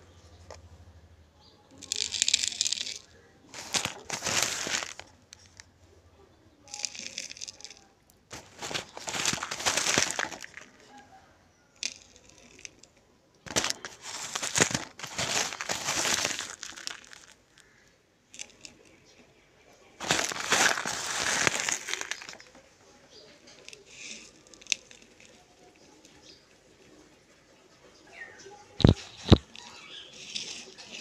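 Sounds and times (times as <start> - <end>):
chalky pieces crunching on clay pot: 1.8 - 5.6, 6.7 - 10.9, 11.8 - 12.9, 13.5 - 17.8, 20.0 - 22.6, 28.8 - 31.0.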